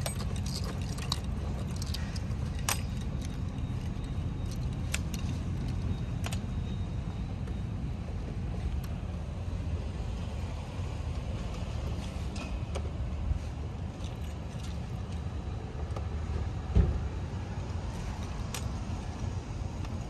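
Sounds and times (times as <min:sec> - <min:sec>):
keys clinking: 0:00.0 - 0:06.8
steady low rumble: 0:00.0 - 0:20.0.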